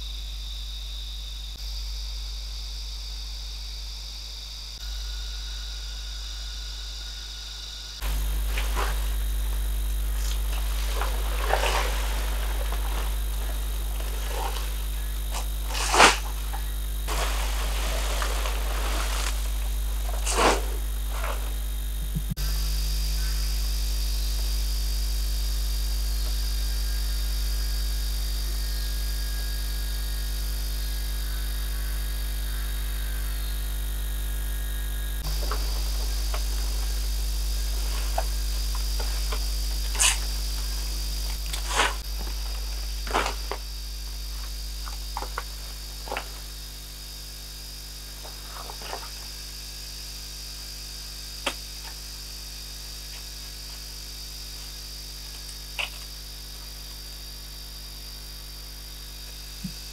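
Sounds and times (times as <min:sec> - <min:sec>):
high drone of insects: 0:00.0 - 0:59.9
palm fronds rustling: 0:08.0 - 0:22.1, 0:35.2 - 0:47.2, 0:47.9 - 0:49.6.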